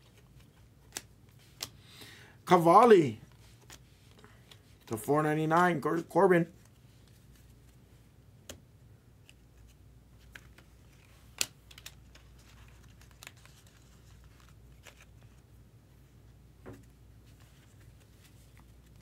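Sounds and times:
cards rustling: 0.0 - 1.9, 2.8 - 5.8, 9.2 - 15.5, 16.7 - 19.0
low room hum: 0.0 - 19.0
cards clicking: 10.3 - 13.8.

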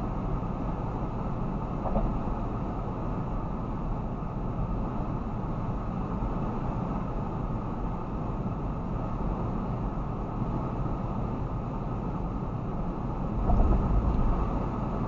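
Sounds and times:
low engine hum: 0.0 - 15.0
road and tyre noise: 0.0 - 15.0.

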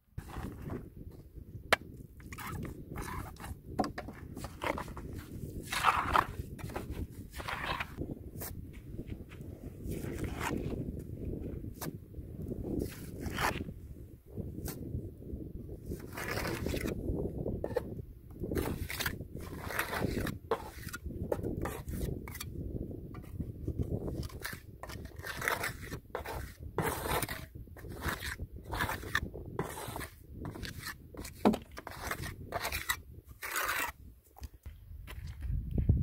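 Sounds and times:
trowel scraping mortar on wall: 0.2 - 0.9, 1.8 - 8.5, 9.9 - 10.8, 12.8 - 13.7, 15.8 - 17.0, 17.6 - 22.6, 23.2 - 34.5.

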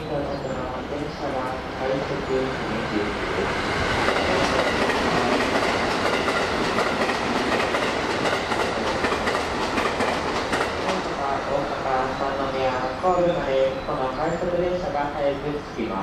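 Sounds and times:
train wheels clacking over rail joints: 3.8 - 11.1.

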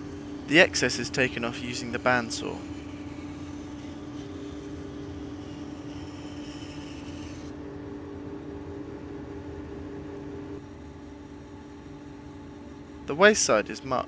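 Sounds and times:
bandsaw humming: 0.0 - 7.6.

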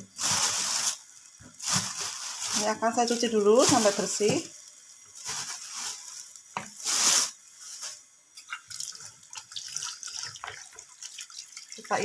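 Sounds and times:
drips and splashes in a sink: 8.4 - 12.0
tap water gushing: 8.4 - 12.0.

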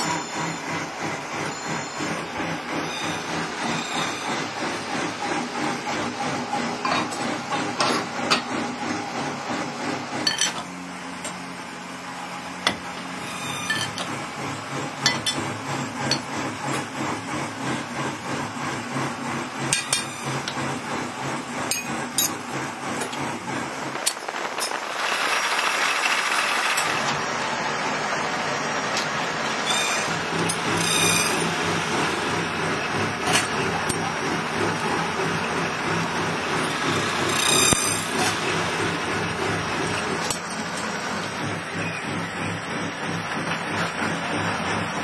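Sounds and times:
machinery rhythmic pulse: 0.0 - 10.2.

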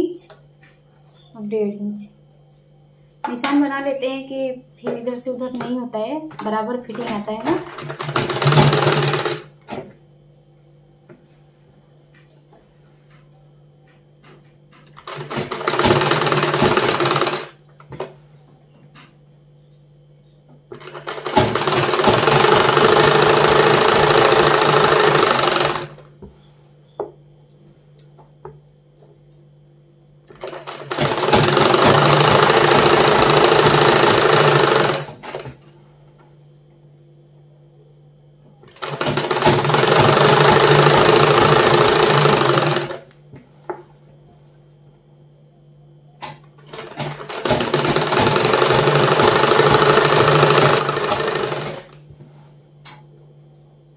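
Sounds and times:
sewing machine stitching: 6.9 - 9.5, 14.9 - 17.6, 20.7 - 26.0, 30.3 - 35.6, 38.7 - 43.1, 46.6 - 52.0.

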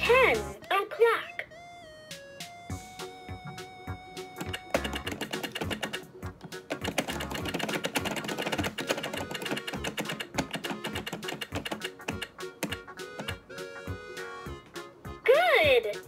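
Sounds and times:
background music: 0.0 - 16.0
plastic clock hands clicking: 4.4 - 13.4.

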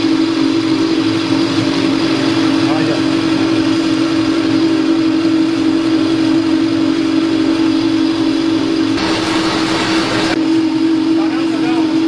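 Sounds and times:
hydraulic pump humming: 0.0 - 12.0
hiss burst: 9.0 - 10.4.

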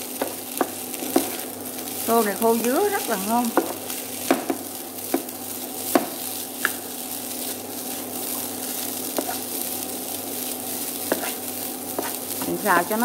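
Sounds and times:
rice sizzling in frying pan: 0.0 - 13.0
spatula tapping pan: 0.2 - 1.4, 5.9 - 6.8, 11.0 - 13.0
spatula stirring: 0.2 - 2.0, 3.5 - 13.0.

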